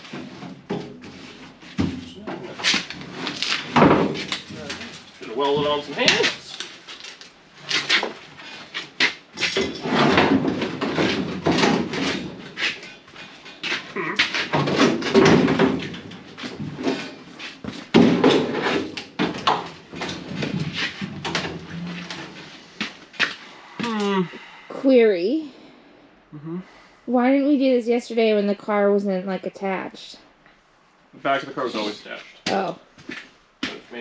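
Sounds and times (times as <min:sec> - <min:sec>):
sheet metal scraping and clanking: 0:19.9 - 0:22.6.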